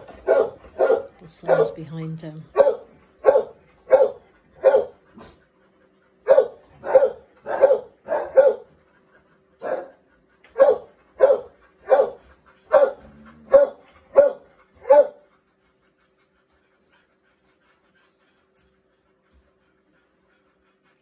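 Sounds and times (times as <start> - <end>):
dog barking: 0.2 - 1.8, 2.5 - 5.0, 6.2 - 8.7, 9.6 - 10.0, 10.6 - 15.2.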